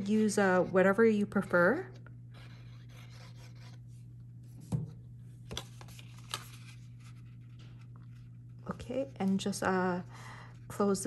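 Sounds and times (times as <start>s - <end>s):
faint hum: 0.0s - 11.0s
paper rubbing and sliding: 2.4s - 3.8s.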